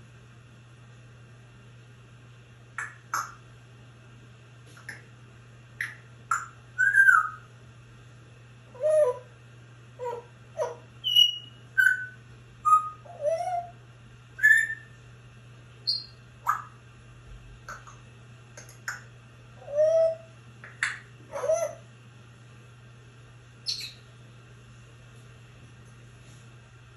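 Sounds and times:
parrot whistling and chirping: 2.8 - 3.4, 5.8 - 7.5, 8.7 - 9.3, 10.0 - 13.8, 14.4 - 15.0, 15.8 - 16.8, 19.6 - 21.8, 23.6 - 24.0.

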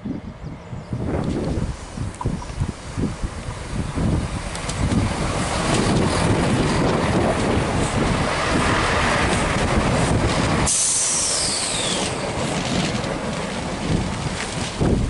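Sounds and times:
train wheels rumbling on rail: 0.0 - 15.0
hiss with high falling whine: 10.7 - 12.2.

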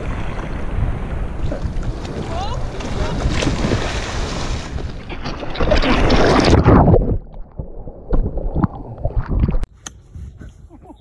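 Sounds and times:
seawater splashing and sloshing: 0.0 - 7.2.

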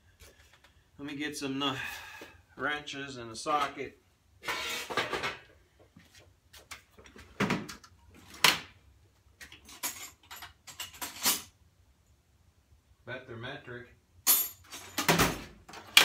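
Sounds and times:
tool drawer sliding: 4.4 - 5.4
metal tools clinking: 9.5 - 11.5, 14.3 - 15.1.

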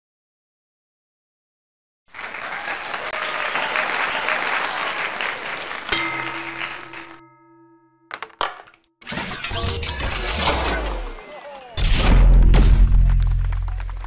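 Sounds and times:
audience applause: 2.1 - 7.2, 13.0 - 14.0.

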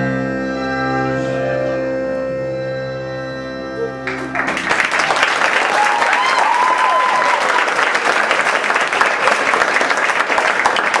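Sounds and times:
audience applauding: 4.0 - 11.0
person whooping: 5.6 - 7.7.

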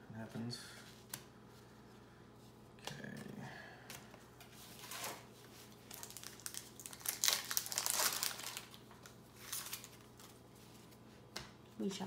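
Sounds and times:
foil wrapper crinkling: 4.7 - 10.4.

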